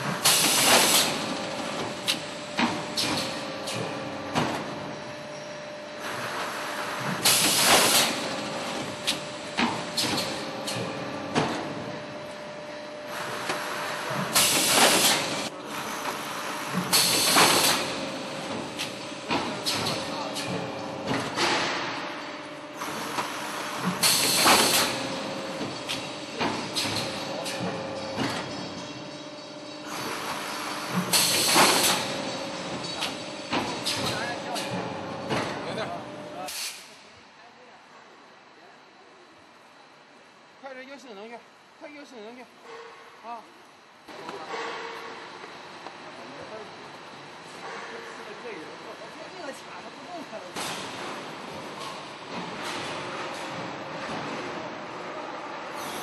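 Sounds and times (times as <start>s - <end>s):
machine hiss: 0.1s - 3.8s, 7.2s - 10.8s, 13.1s - 15.5s, 16.2s - 20.6s, 22.8s - 27.6s, 29.8s - 34.7s, 36.4s - 37.0s, 55.7s - 56.0s
stacking mechanism knocks and clanks: 16.7s - 22.4s, 23.1s - 35.9s, 50.5s - 55.0s
compressed air hiss: 36.5s - 37.0s.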